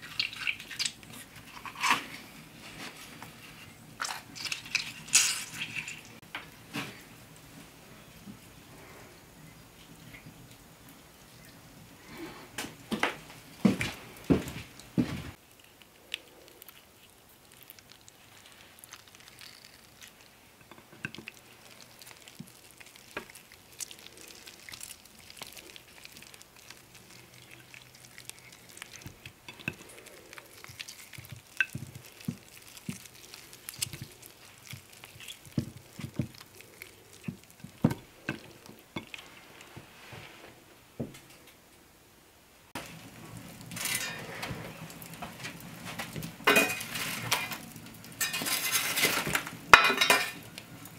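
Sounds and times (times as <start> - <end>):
wet squishing of sausage meat: 0.0 - 6.3, 13.9 - 39.8, 42.8 - 50.9
log fire crackling: 12.7 - 40.5, 42.7 - 50.9.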